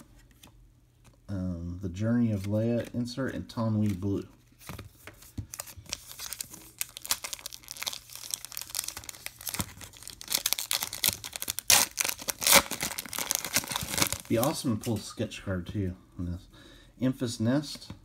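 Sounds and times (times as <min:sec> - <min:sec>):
foil wrapper tearing and crinkling: 0:05.5 - 0:14.6.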